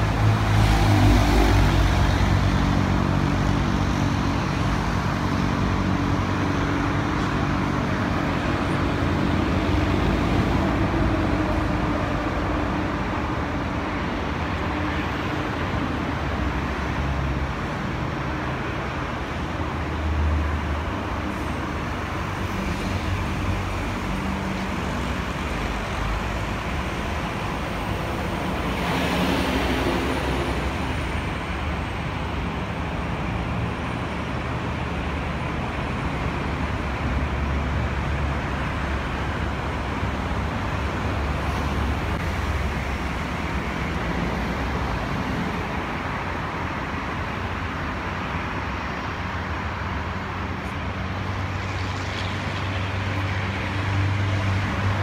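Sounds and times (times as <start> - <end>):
city traffic rumble: 0.0 - 55.0.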